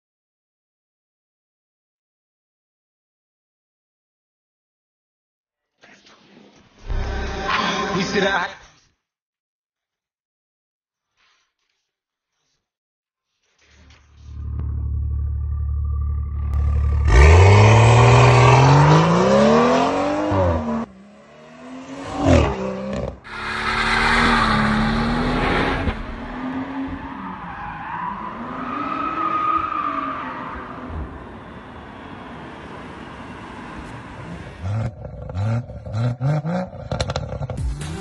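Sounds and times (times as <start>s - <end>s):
car engine revving hard: 16.6s - 26.9s, 34.3s - 38.0s.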